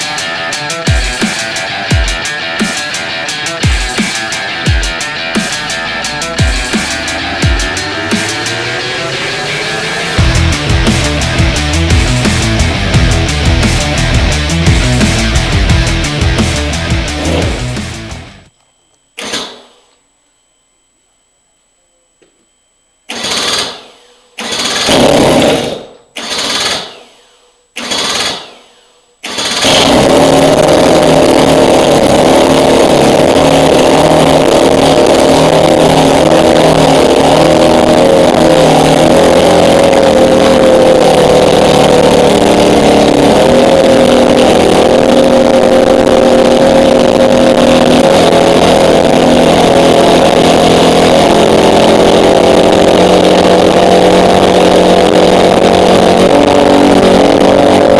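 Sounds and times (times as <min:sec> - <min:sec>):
two-stroke engine running: 0:00.0 - 0:18.5, 0:24.4 - 0:26.8, 0:29.3 - 0:57.9
engine cranking: 0:23.1 - 0:27.2, 0:27.8 - 0:57.9.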